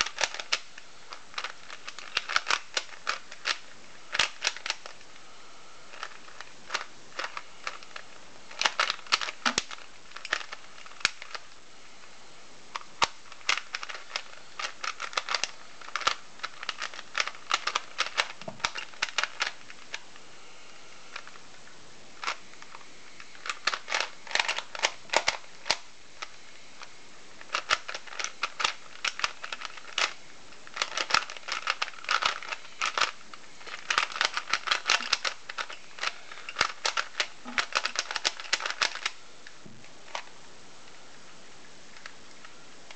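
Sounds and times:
puzzle cube layers clicking: 0.0s - 0.7s, 1.3s - 5.0s, 5.9s - 11.4s, 12.7s - 19.6s, 27.4s - 39.2s.

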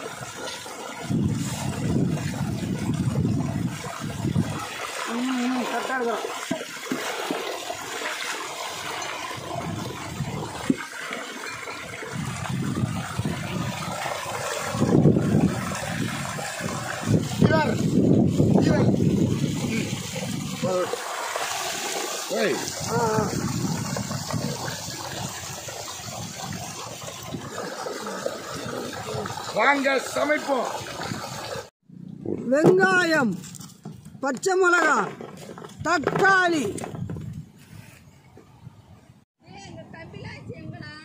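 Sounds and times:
splashing pot in water: 0.0s - 31.7s
stream water gushing: 0.0s - 31.7s.

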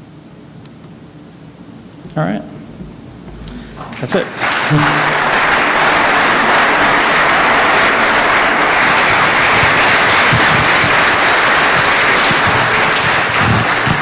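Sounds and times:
audience applauding: 3.3s - 14.0s.

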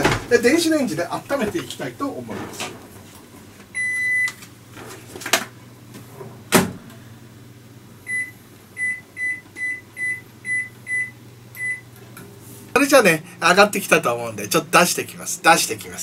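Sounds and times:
faint steady hum: 0.0s - 16.0s
microwave short beeps: 3.8s - 4.4s, 8.1s - 11.9s.

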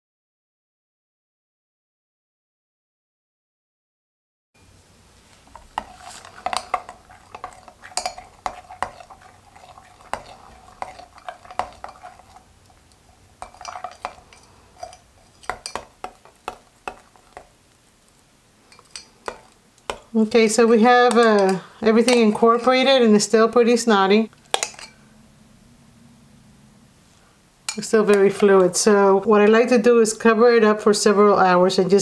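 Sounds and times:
metal spatula scraping glass beaker: 5.6s - 12.4s, 13.4s - 16.2s
spatula clinking against glass: 5.6s - 12.4s, 13.4s - 17.4s, 18.7s - 20.1s, 24.5s - 25.0s.

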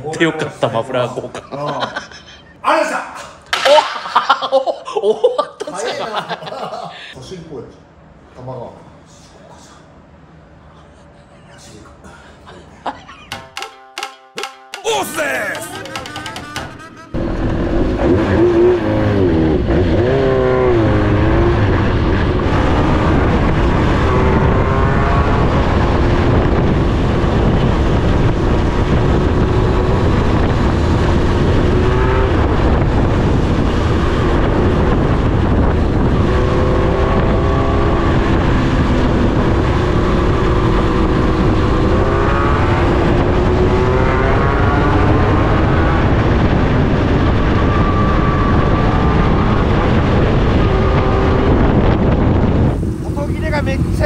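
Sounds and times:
motorcycle engine revving: 15.8s - 54.0s.

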